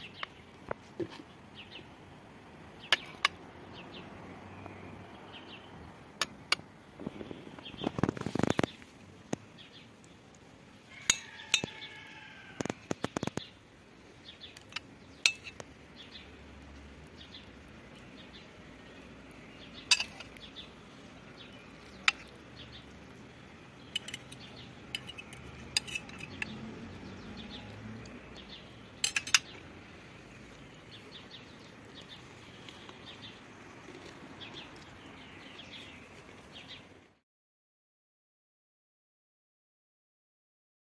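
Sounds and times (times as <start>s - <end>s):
cutlery clinking on a plate: 11.0s - 11.8s, 19.9s - 20.3s, 25.0s - 26.5s, 29.0s - 29.5s.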